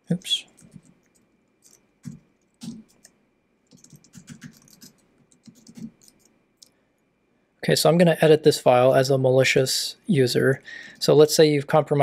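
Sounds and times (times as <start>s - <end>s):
computer keyboard typing: 0.5s - 6.4s.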